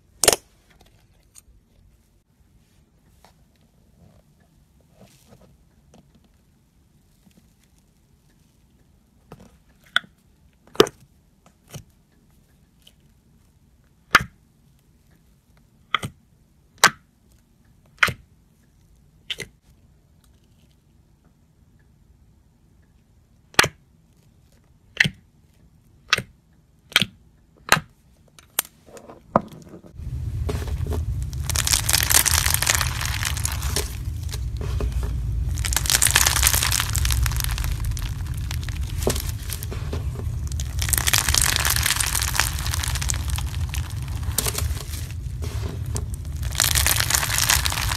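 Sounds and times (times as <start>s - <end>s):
crackling crunch of squeezed floam: 0.0s - 1.4s, 30.0s - 47.9s
slime popping: 30.0s - 47.9s
wooden stick stirring slime: 30.0s - 47.9s.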